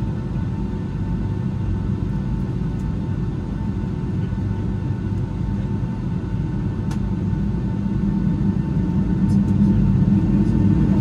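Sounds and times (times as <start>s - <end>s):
jet engines running in cabin: 0.0s - 11.0s.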